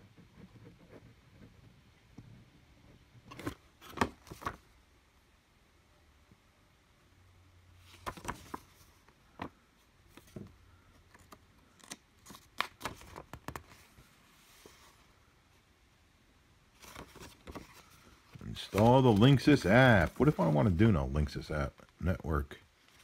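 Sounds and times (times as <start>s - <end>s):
paper rustling: 3.3s - 4.6s, 7.8s - 15.1s, 16.8s - 20.9s
paper crackling and tapping: 7.9s - 13.8s.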